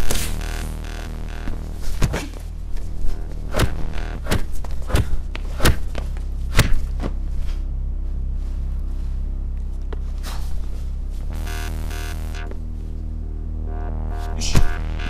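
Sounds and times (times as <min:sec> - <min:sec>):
low bass drone: 0:00.0 - 0:15.0
punch impact sound effects: 0:03.5 - 0:05.9, 0:06.5 - 0:06.8.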